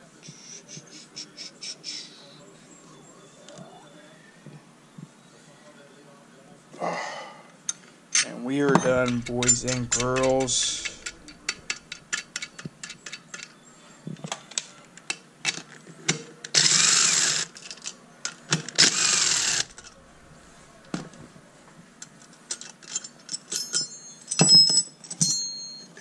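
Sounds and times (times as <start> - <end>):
ringing metal clinks: 8.7 - 12.7, 22.9 - 26.0
light metal clicks of tool: 8.8 - 13.5
power driver spinning: 8.9 - 13.2, 18.8 - 21.4.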